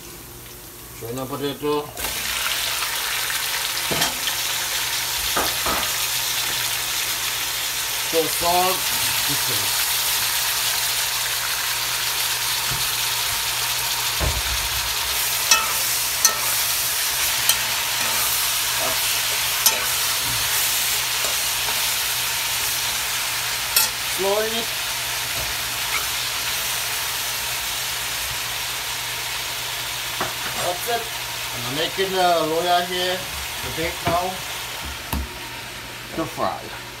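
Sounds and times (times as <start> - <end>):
potatoes sizzling in hot oil: 2.0 - 35.8
metal spoon clinking on pot: 15.5 - 16.6, 19.6 - 20.0.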